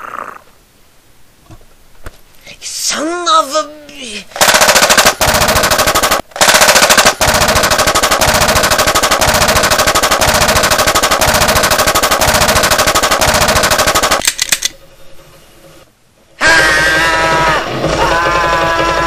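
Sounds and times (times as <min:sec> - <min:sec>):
rapid machine-gun fire: 0:04.4 - 0:14.2, 0:17.2 - 0:19.0.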